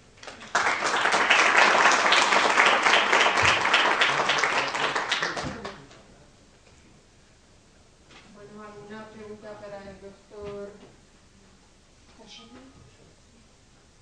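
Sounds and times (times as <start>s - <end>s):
audience applause: 0.0s - 5.9s.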